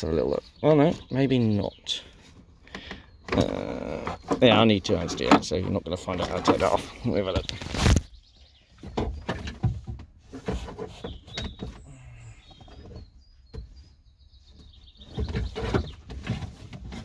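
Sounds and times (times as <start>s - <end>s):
faint bird chirps: 10.9s - 16.0s.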